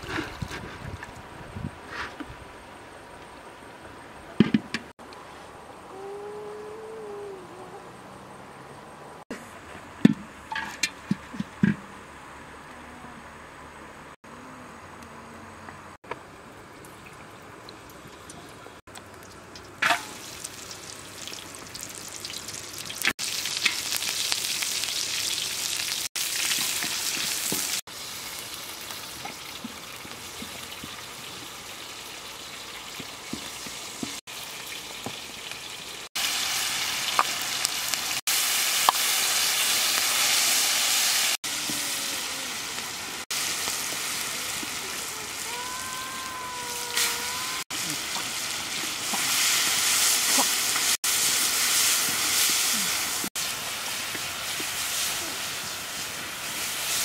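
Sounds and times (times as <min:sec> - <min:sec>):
food frying in oil: 0:16.8 - 0:57.0.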